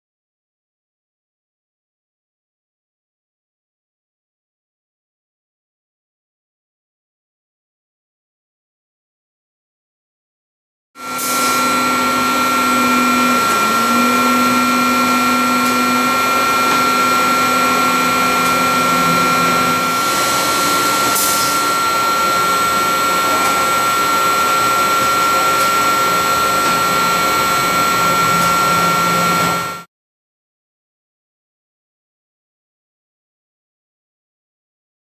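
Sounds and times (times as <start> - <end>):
grinder machine whining: 11.0 - 29.9
low hum: 11.5 - 29.8.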